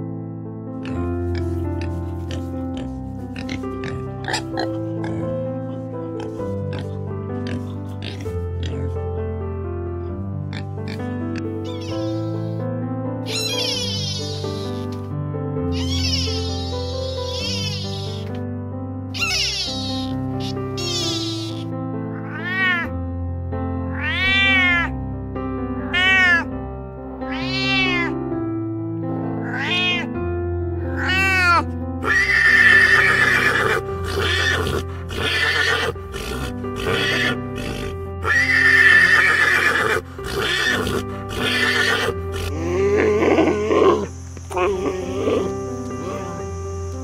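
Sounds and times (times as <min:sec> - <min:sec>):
background music: 0:00.0 - 0:47.0
harsh animal sound: 0:10.9 - 0:12.6, 0:13.3 - 0:14.9, 0:15.7 - 0:18.3, 0:19.2 - 0:22.9, 0:31.0 - 0:47.0
cat meowing: 0:11.7 - 0:12.6, 0:13.3 - 0:14.9, 0:15.7 - 0:18.3, 0:19.2 - 0:22.9, 0:23.9 - 0:24.9, 0:25.8 - 0:26.5, 0:27.3 - 0:28.2, 0:29.4 - 0:30.1, 0:30.9 - 0:34.5.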